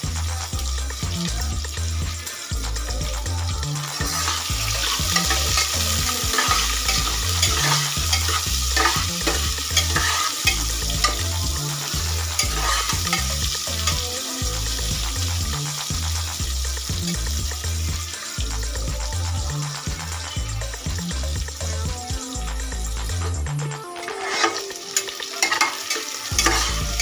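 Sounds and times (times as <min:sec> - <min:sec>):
onions sizzling: 0:00.0 - 0:23.1, 0:23.8 - 0:27.0
spatula scraping pot: 0:03.8 - 0:14.2, 0:24.0 - 0:27.0.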